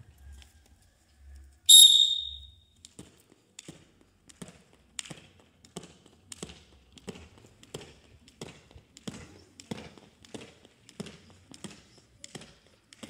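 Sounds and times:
high-pitched start signal: 1.7s - 2.5s
jump rope slapping concrete: 2.9s - 13.0s.

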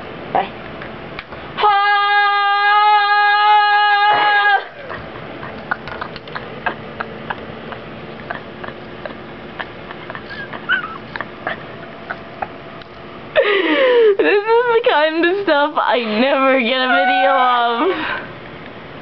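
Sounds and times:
woman screaming: 1.6s - 5.0s, 16.0s - 18.2s
scattered clicks: 5.6s - 6.5s.

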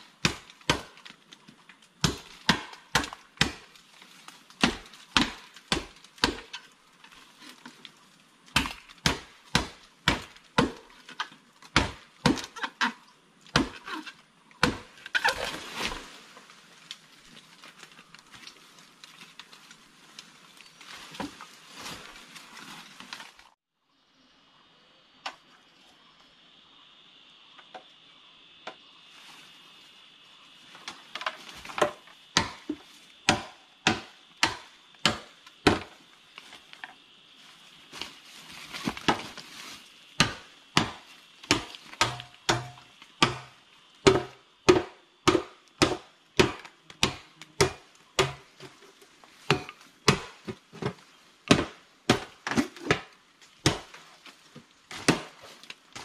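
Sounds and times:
machete chopping bamboo: 0.2s - 1.2s, 2.0s - 3.8s, 4.6s - 6.7s, 8.5s - 16.1s, 31.2s - 36.0s, 40.2s - 48.7s, 49.4s - 54.0s, 54.9s - 56.0s.

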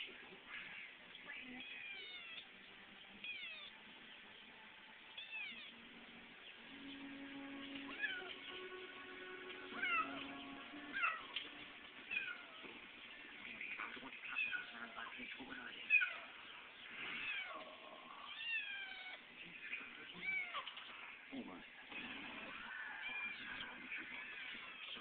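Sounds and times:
faint television music: 0.0s - 25.0s
kitten meowing: 1.6s - 2.5s, 3.2s - 3.7s, 5.2s - 5.7s, 7.9s - 8.3s, 9.7s - 10.2s, 12.1s - 12.6s, 18.3s - 19.2s.

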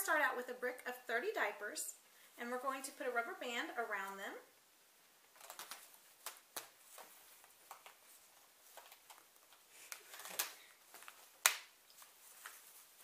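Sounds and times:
rubber band stretching: 5.3s - 8.1s, 8.7s - 11.9s
diaper package rustling: 5.3s - 13.0s.

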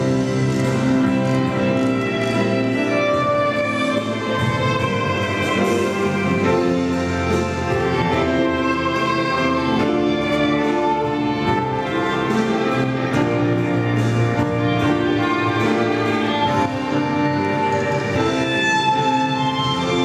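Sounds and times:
violins playing classical music: 0.0s - 20.0s.

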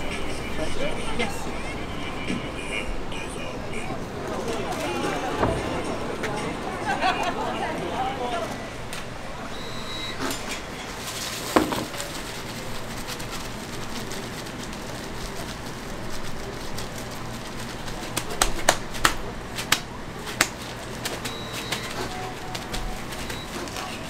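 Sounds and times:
low kitchen hum: 0.0s - 24.0s
utensils clacking: 10.1s - 15.6s.

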